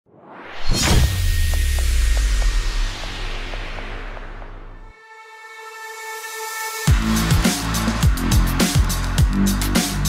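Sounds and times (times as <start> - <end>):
rising whoosh: 0.0 - 5.0
deep low drone: 0.7 - 4.9
heavy bass hit: 0.7 - 4.9.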